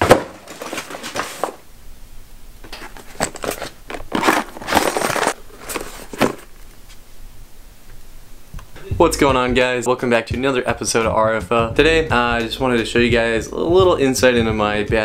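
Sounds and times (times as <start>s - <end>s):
tackle bag rustling and scraping: 2.8s - 6.6s.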